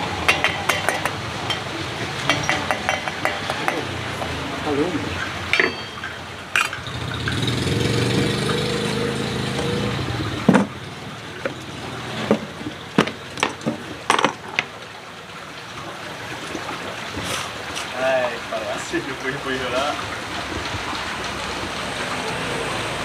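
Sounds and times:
vehicle engine passing: 6.5 - 12.9, 20.2 - 23.0.

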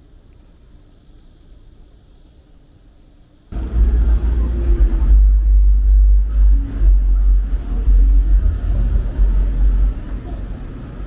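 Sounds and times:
wind rumble buffeting microphone: 3.5 - 11.0.

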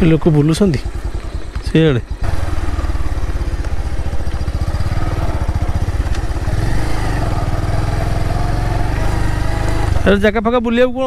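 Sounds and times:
motorcycle engine putter: 0.0 - 6.7.

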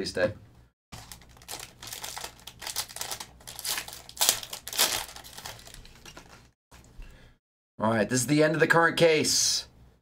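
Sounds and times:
foil wrapper crinkling: 0.9 - 6.5.

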